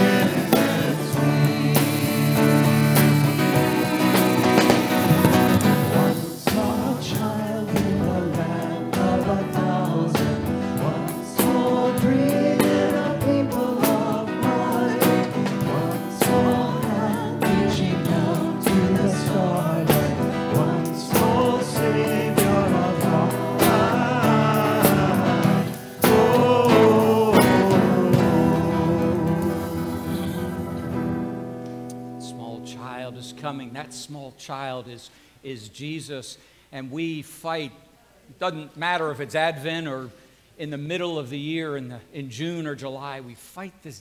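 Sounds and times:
guitar accompaniment: 0:00.0 - 0:33.9
worship song singing: 0:00.0 - 0:34.7.

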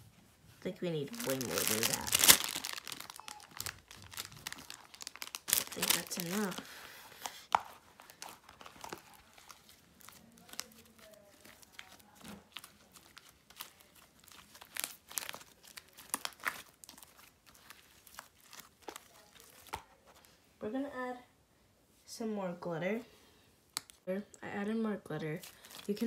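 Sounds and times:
slime squishing and crackling: 0:01.1 - 0:20.0.

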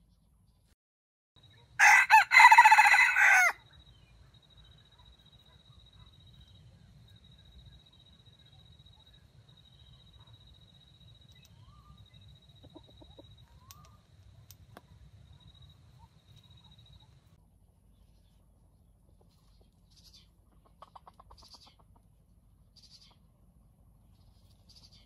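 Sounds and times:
junglefowl clucking: 0:20.5 - 0:22.0.

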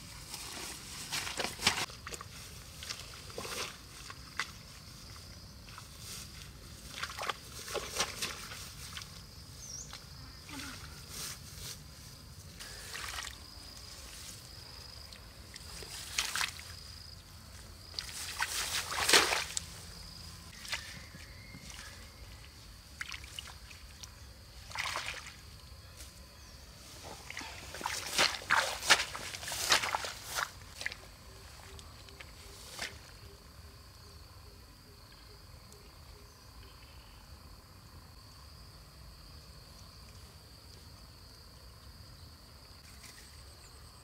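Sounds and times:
hands rustling wet grass: 0:00.0 - 0:33.2
water sloshing and splashing: 0:06.7 - 0:09.2, 0:15.1 - 0:16.8, 0:17.9 - 0:19.7, 0:22.4 - 0:25.6, 0:27.1 - 0:31.0.

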